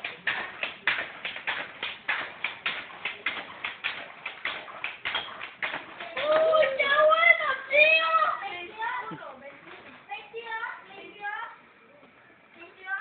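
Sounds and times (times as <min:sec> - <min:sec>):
rapid sharp taps: 0:00.0 - 0:06.7.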